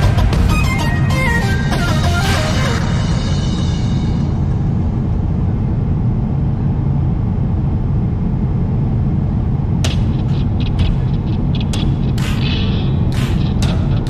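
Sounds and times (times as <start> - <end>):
airliner cabin rumble: 0.0 - 14.0.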